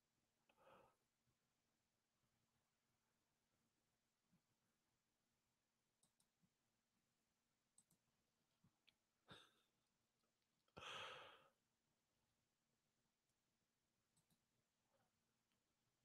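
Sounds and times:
faint clicks: 7.7s - 8.1s
man breathing: 10.8s - 11.6s.

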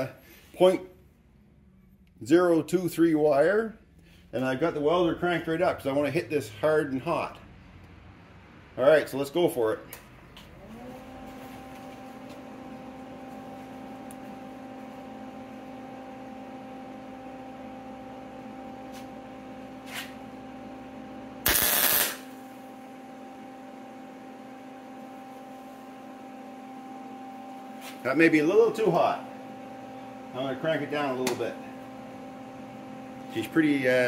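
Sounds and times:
welder humming: 10.6s - 34.0s
tack weld crackling: 21.4s - 22.3s.

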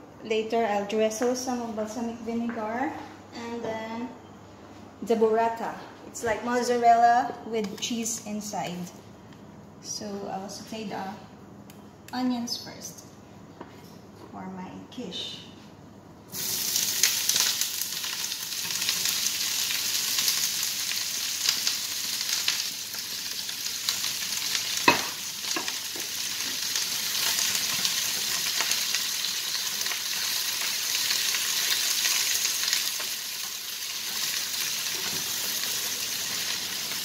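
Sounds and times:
onions sizzling in frying pan: 16.3s - 37.0s.

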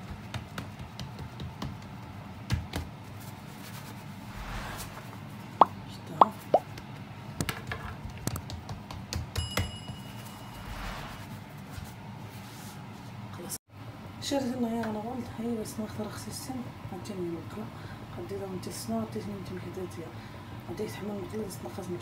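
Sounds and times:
hands patting dough on wood: 0.0s - 3.1s, 6.6s - 9.7s
bell ding: 9.4s - 10.8s.

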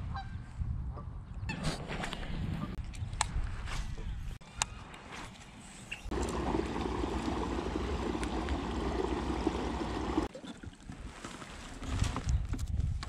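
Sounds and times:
electric motor hum: 6.1s - 10.3s
water rushing along hull: 6.1s - 10.6s.

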